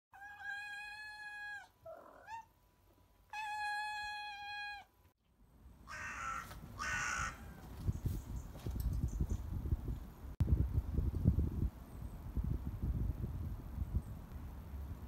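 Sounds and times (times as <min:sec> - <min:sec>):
cat meowing: 0:00.2 - 0:02.5, 0:03.3 - 0:04.9.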